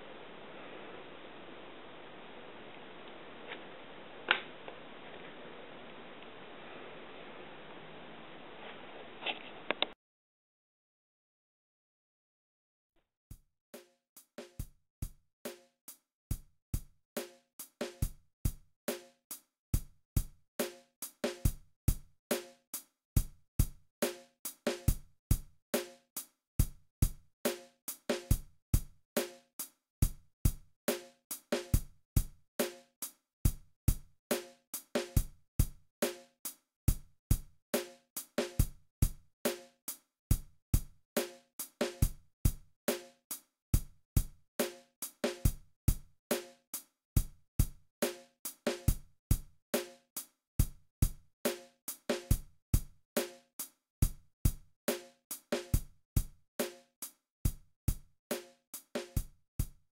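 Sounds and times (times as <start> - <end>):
kick and snare drum beat: 16.3 - 19.0, 19.8 - 22.5, 23.2 - 26.0, 26.6 - 29.4, 30.0 - 32.8, 33.5 - 36.2, 36.9 - 39.7, 40.3 - 43.1, 43.8 - 46.6, 47.2 - 50.0, 50.6 - 53.4, 54.0 - 56.8, 57.5 - 59.9.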